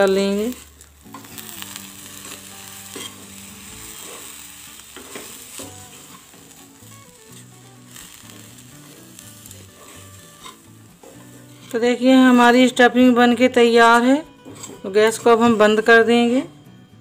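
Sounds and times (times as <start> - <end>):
oil sizzling: 0.0 - 16.0
soft background music: 0.0 - 17.0
spoon stirring and scraping pan: 2.1 - 6.7, 7.3 - 12.4, 14.4 - 15.5.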